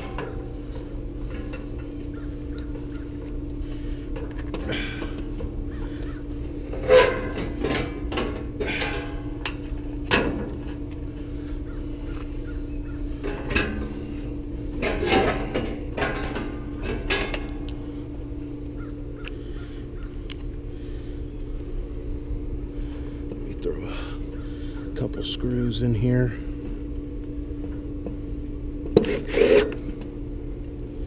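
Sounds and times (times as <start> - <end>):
steady low hum: 0.0 - 31.0
crows cawing: 1.9 - 4.0, 4.7 - 6.7, 11.2 - 13.2, 18.7 - 21.0, 23.9 - 25.0.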